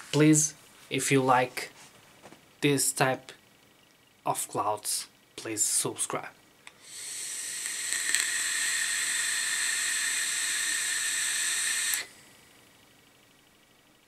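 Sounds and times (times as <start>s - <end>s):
e-cigarette air hiss: 6.7s - 12.3s.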